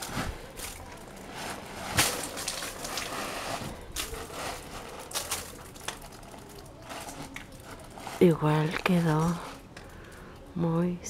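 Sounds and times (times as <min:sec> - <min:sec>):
broom hitting plastic sheet: 0:00.0 - 0:05.7
plastic sheet crackling: 0:00.0 - 0:10.2.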